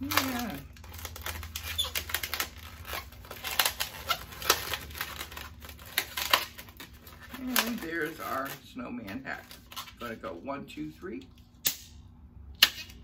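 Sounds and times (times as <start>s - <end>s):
balloon squeaking and crackling: 0.0s - 10.0s.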